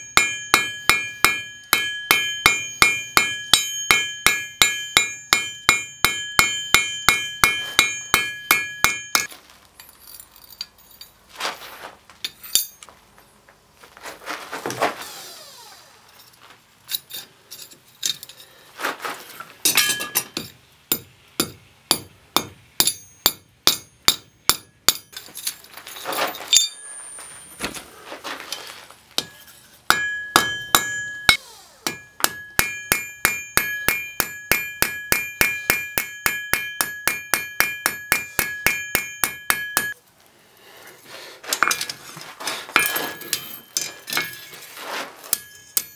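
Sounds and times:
hammer striking steel on anvil: 0.0 - 9.3, 19.7 - 25.3, 26.5 - 26.9, 29.2 - 40.0, 42.8 - 44.5, 45.3 - 45.9.

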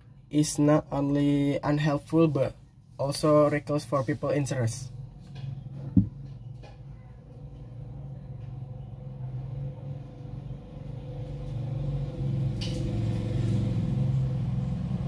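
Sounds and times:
low motor rumble: 4.0 - 15.0.

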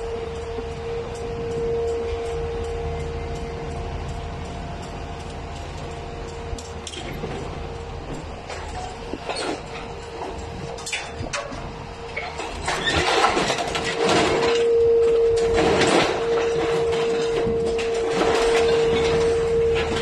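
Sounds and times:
hydraulic hum: 0.0 - 20.0
scrap metal clanking and scraping: 5.3 - 20.0.

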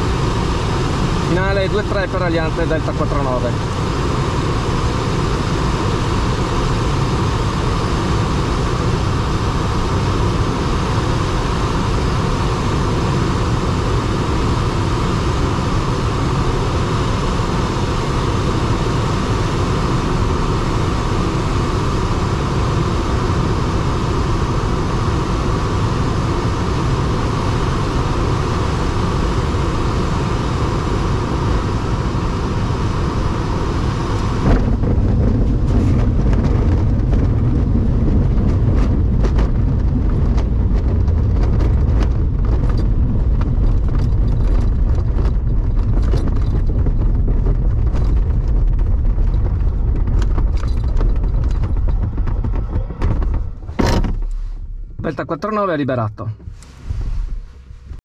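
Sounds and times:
air rushing around cockpit: 0.0 - 58.0
glider rolling on grass: 31.2 - 54.5.

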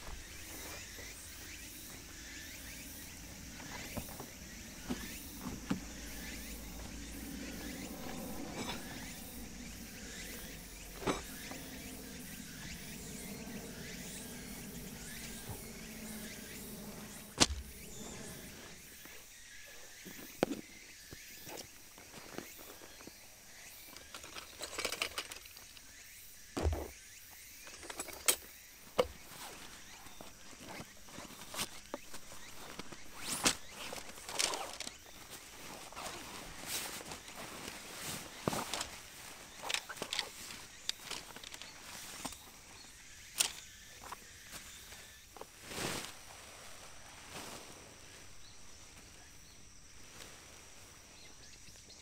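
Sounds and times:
outdoor background: 0.0 - 52.0
camping gear knocks and thumps: 3.2 - 18.4, 26.6 - 27.0.

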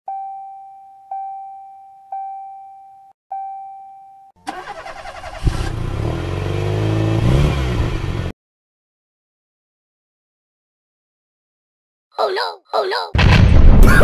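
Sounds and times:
electronic ding tones: 0.1 - 4.3
truck engine revving: 4.5 - 8.3.

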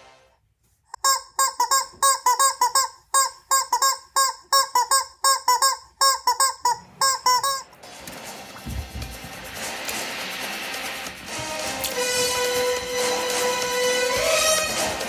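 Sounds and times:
squeaky rubber chicken squawks: 0.9 - 7.8.

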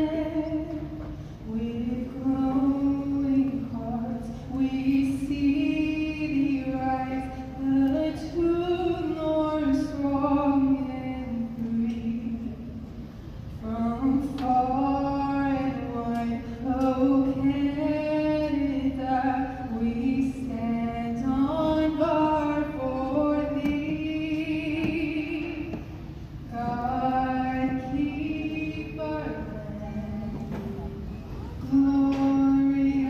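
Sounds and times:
women singing together: 13.7 - 25.9.

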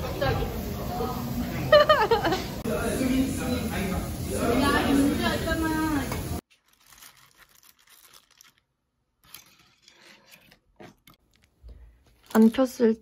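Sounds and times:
dried flowers rustling: 6.4 - 10.0, 11.8 - 13.0.

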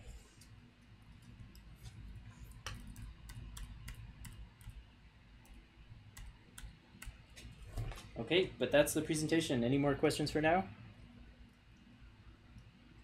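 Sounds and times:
faint low hum: 0.0 - 13.0
computer mouse clicks: 0.4 - 4.8, 5.4 - 7.6.

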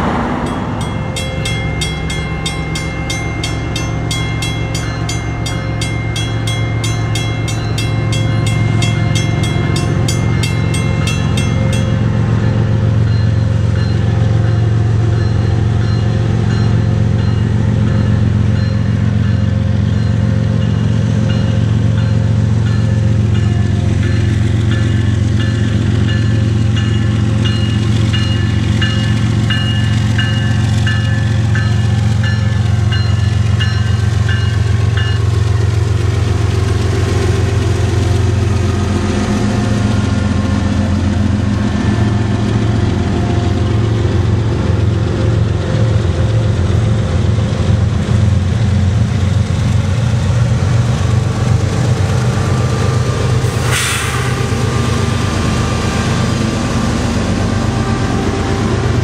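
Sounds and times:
crossing bell dinging: 0.0 - 35.9
diesel locomotives passing: 0.0 - 59.0
short hiss: 53.5 - 54.5.

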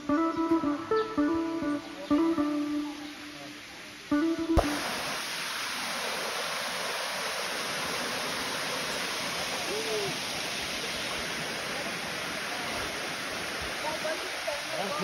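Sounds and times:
waterfall cascading over rock: 4.6 - 15.0.

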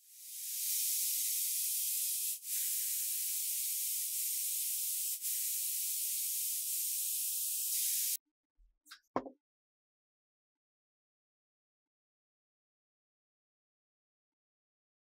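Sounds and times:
pressurised spray hissing: 0.0 - 8.2.

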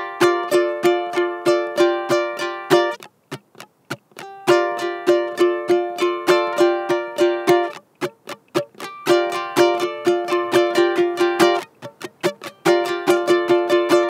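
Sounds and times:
muted clicking ukulele strums: 0.0 - 14.0
ukulele strumming chords: 0.0 - 14.0.

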